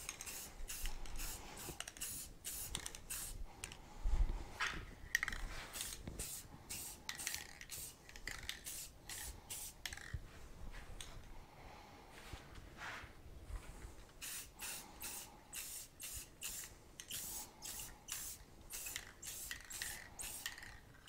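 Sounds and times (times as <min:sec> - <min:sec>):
spray paint can hissing: 0:00.0 - 0:03.4, 0:05.7 - 0:09.8, 0:14.2 - 0:20.8.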